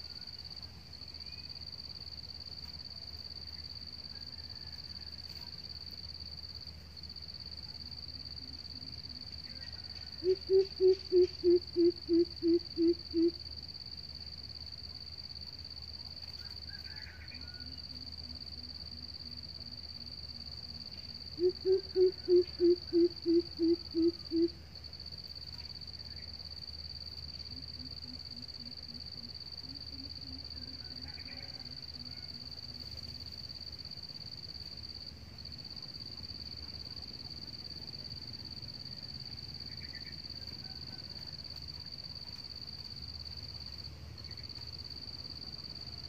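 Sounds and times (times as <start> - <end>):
bird hooting: 9.5 - 13.4, 21.4 - 24.6
fainter lower bird hooting: 9.5 - 13.4, 21.4 - 24.6.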